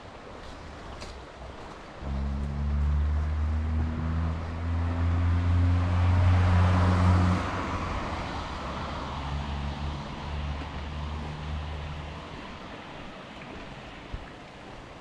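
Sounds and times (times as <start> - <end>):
car engine hum: 1.4 - 12.9.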